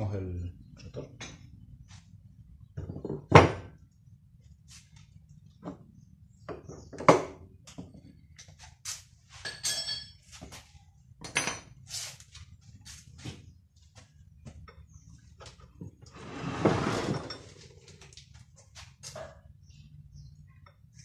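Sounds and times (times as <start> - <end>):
metal clinks: 9.4 - 10.2.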